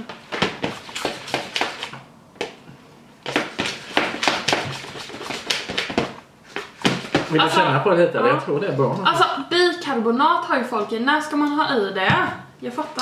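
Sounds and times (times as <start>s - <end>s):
plastic spoon stirring slime: 3.3s - 7.4s.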